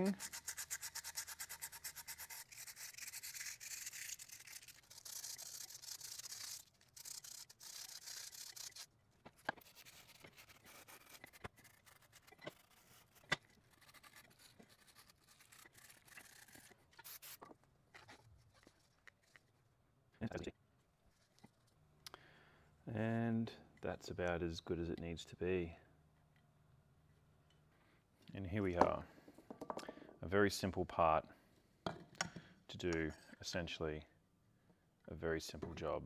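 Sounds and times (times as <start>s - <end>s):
sandpaper rubbing by hand: 0.0s - 8.9s, 9.6s - 17.4s.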